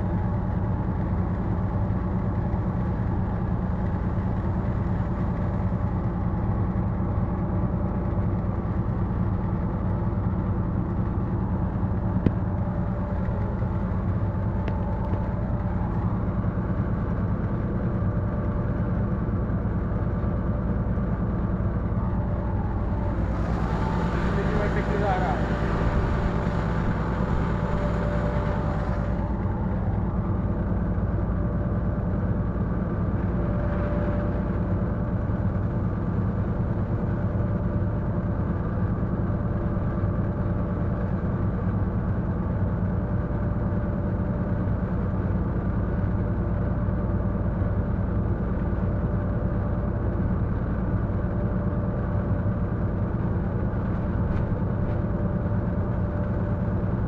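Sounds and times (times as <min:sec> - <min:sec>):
diesel locomotive engine drone: 0:00.0 - 0:57.0.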